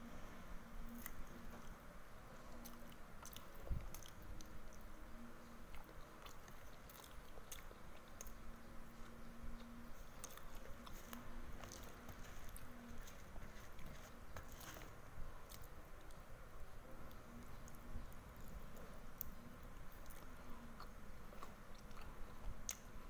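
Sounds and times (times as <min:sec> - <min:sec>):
person chewing: 0:02.5 - 0:04.9, 0:05.7 - 0:16.2, 0:17.1 - 0:22.9.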